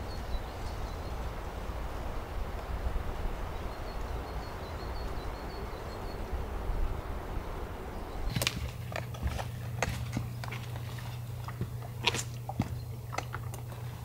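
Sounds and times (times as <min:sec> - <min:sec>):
forest background noise: 0:00.0 - 0:14.0
bird chirping: 0:03.5 - 0:14.0
footsteps on rocks and pine needles: 0:08.2 - 0:14.0.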